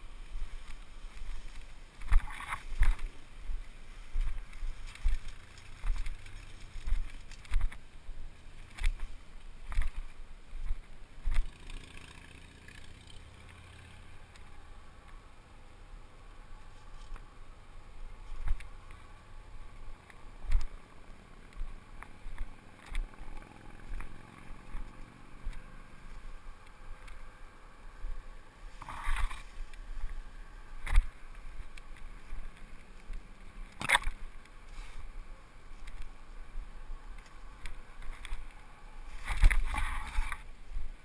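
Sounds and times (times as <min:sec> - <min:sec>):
footsteps: 0:00.0 - 0:11.5, 0:18.2 - 0:27.2, 0:37.1 - 0:40.9
undergrowth rustling: 0:00.0 - 0:41.0.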